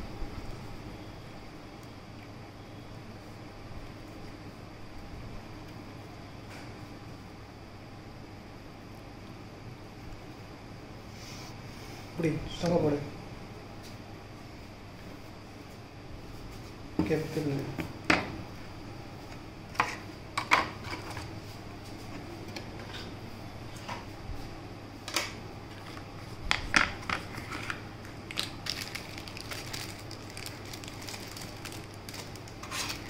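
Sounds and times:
faint steady hum: 0.0 - 33.0
packaging clicks and crinkles: 26.6 - 33.0.

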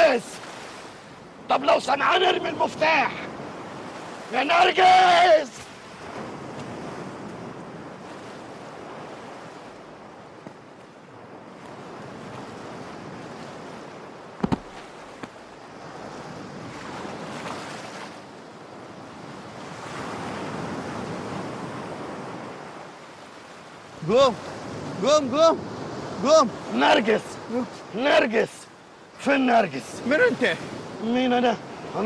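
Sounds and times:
surf breaking on a beach: 0.0 - 32.0
short sharp thud: 14.4 - 15.4.

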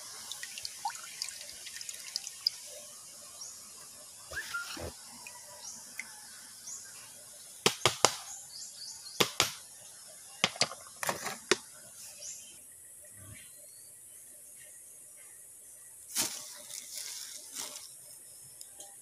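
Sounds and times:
faint hiss: 15.7 - 18.7.

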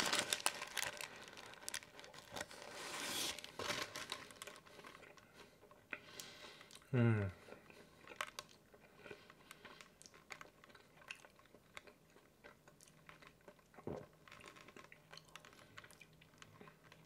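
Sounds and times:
person chewing food: 4.5 - 17.0
low throat sound: 6.9 - 7.4.

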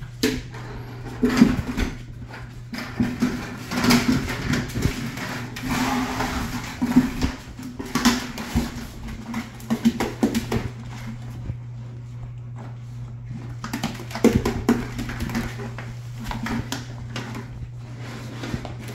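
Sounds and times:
paws scrabbling: 0.0 - 18.9
plastic bucket knocking on wooden floor: 13.6 - 17.3.

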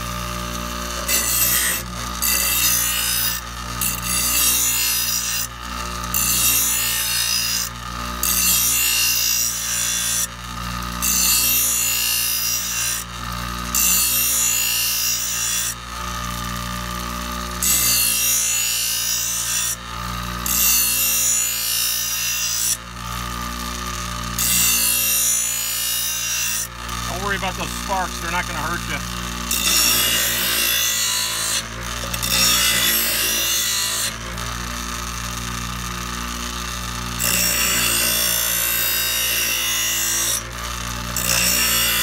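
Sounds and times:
metal blade grinding on wheel: 0.0 - 10.2, 24.3 - 35.4
bench grinder motor running: 0.0 - 42.0.

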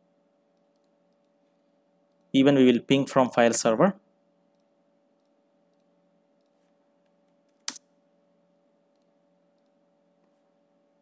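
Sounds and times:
faint hum: 0.0 - 11.0
mouse and keyboard clicks: 7.5 - 7.8.

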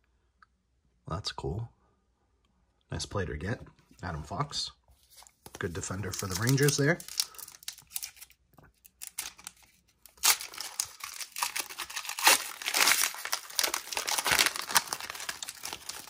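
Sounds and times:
foil wrapper tearing and crackling: 6.1 - 16.0.

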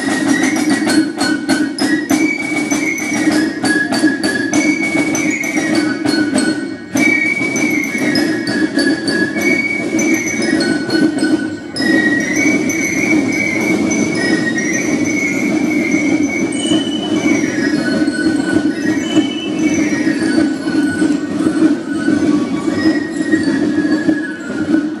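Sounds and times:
rapid snare drum strokes: 0.0 - 25.0
shrill fife melody: 0.0 - 25.0.

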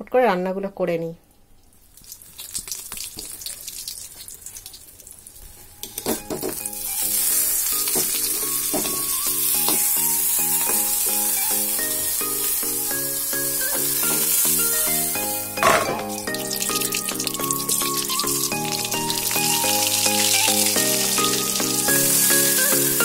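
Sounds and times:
vegetables sizzling in hot oil: 1.9 - 23.0
background music: 6.0 - 23.0.

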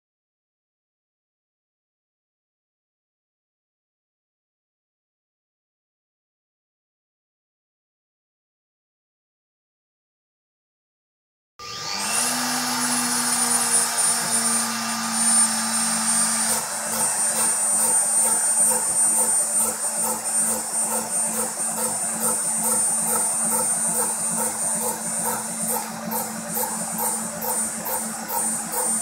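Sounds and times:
rotary tool whine: 11.6 - 29.0
regular machine pulse: 13.7 - 29.0.

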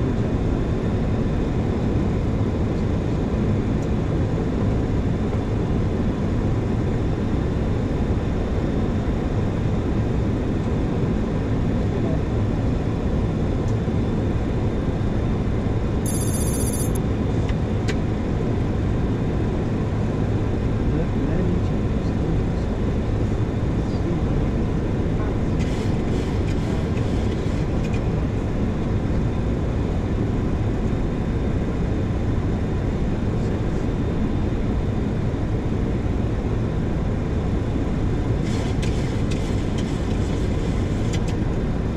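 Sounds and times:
high electronic chirp: 16.1 - 17.0
steady rushing cockpit noise: 16.1 - 17.0, 25.2 - 28.3, 38.2 - 41.9.

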